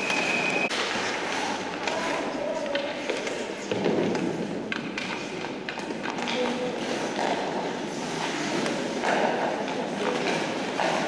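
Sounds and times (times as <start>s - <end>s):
hockey sticks clicking on puck: 0.1s - 11.0s
skate blades scraping ice: 6.7s - 11.0s.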